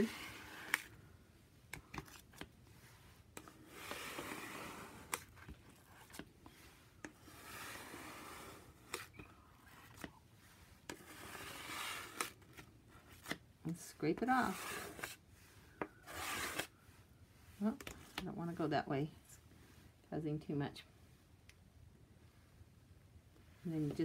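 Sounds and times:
plastic card scraping wet paper: 10.9s - 13.4s.

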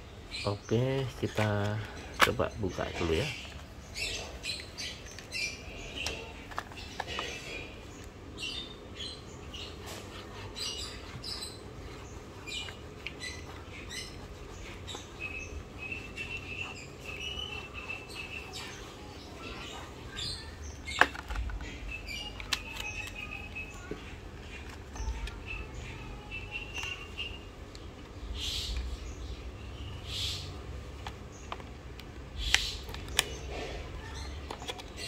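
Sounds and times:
plastic blister card crinkling: 20.9s - 25.7s.

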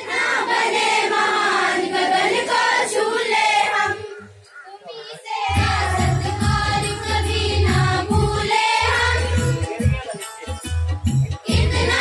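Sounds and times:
children singing in unison: 0.0s - 4.4s, 5.1s - 9.6s, 11.5s - 12.0s.

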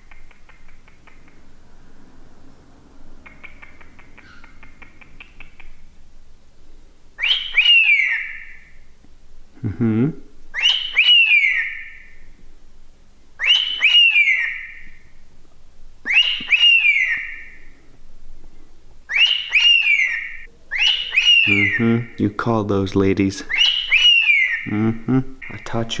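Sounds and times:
cockatiel whistled contact call: 16.1s - 17.4s.

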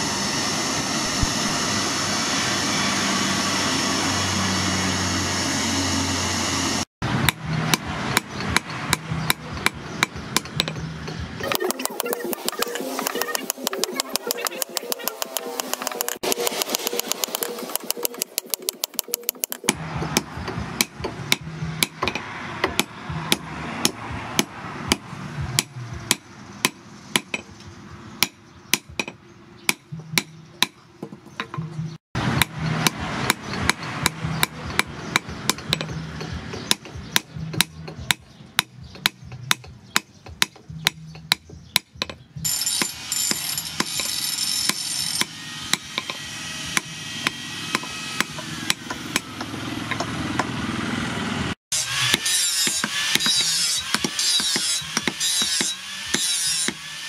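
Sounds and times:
hammer striking hot steel: 7.2s - 25.0s, 32.2s - 50.5s, 51.8s - 56.8s.

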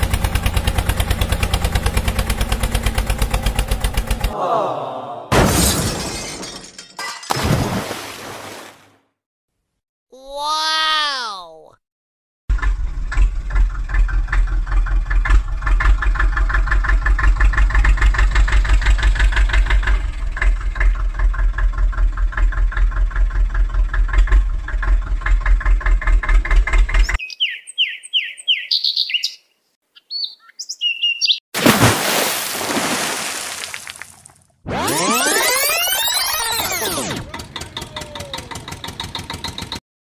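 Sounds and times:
tractor engine chugging: 0.0s - 4.4s, 12.5s - 27.1s, 37.1s - 39.8s.

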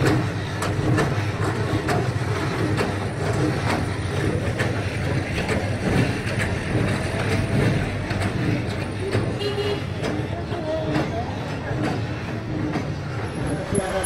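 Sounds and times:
mixing machine motor rumble: 0.0s - 14.0s.

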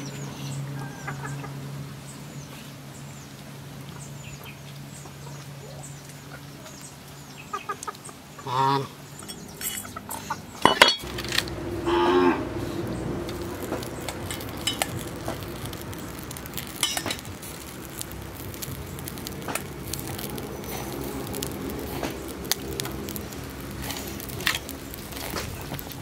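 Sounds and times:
meat sizzling on a grill: 11.0s - 26.0s.

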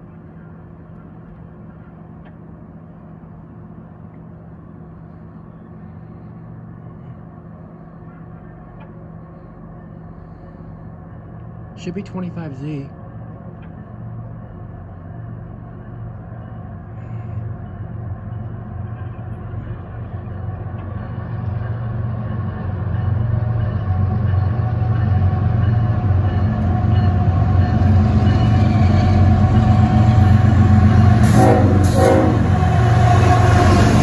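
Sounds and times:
diesel locomotive engine rumble: 0.0s - 34.0s
locomotive horn blasts: 31.2s - 33.6s.

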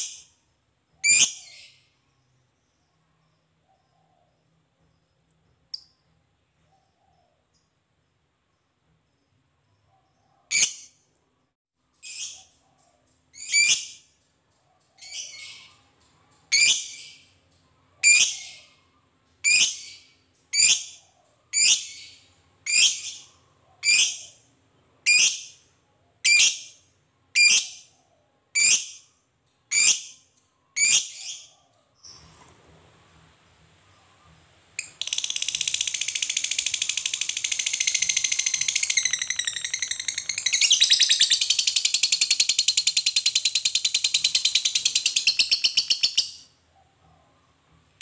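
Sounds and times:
lovebird shrill calls: 34.8s - 46.4s.

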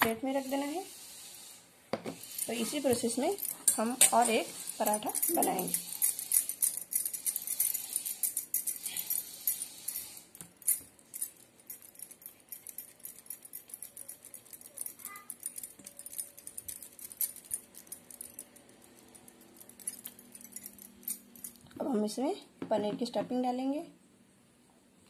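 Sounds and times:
bangles clinking and jingling: 2.2s - 21.7s.

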